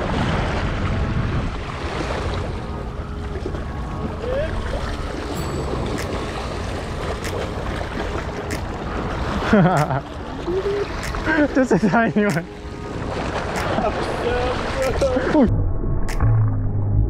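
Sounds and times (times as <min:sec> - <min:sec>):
wind rumbling on the microphone: 0:00.0 - 0:09.5.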